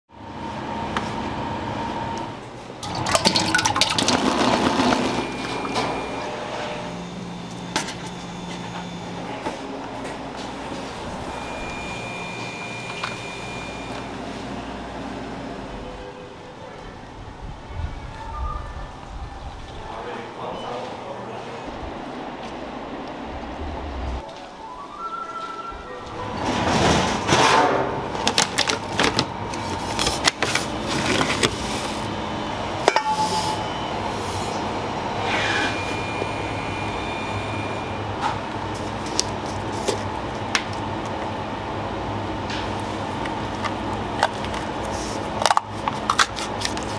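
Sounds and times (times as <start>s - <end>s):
steady low hum: 0.1s - 18.1s, 18.8s - 24.2s
mechanical hum: 0.1s - 46.9s
metal kitchenware clattering: 2.8s - 5.8s
thin high whine: 3.5s - 15.8s, 31.8s - 38.4s
metal clank ringing: 32.9s - 33.6s.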